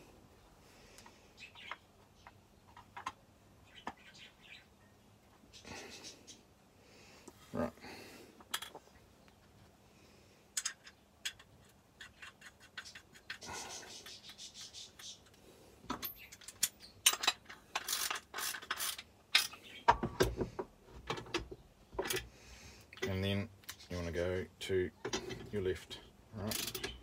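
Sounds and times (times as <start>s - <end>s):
metal tools clicking and scraping: 10.5s - 19.8s, 26.4s - 27.0s.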